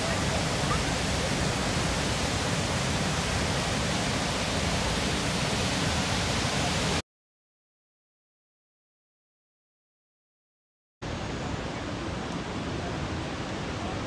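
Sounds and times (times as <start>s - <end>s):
waterfall rushing: 0.0s - 7.0s.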